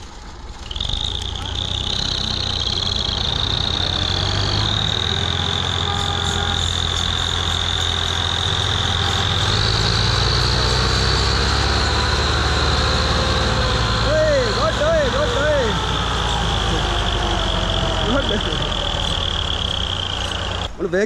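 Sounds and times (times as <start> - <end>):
diesel tractor engine under load: 0.0 - 21.0
steady high whistling tone: 0.6 - 21.0.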